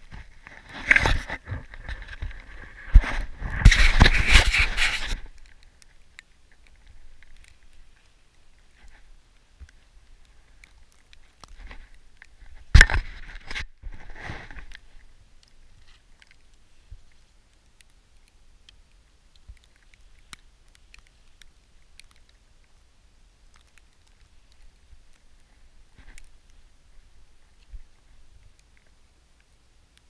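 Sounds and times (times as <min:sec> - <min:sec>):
clothing rustling scrape: 0:00.5 - 0:05.3.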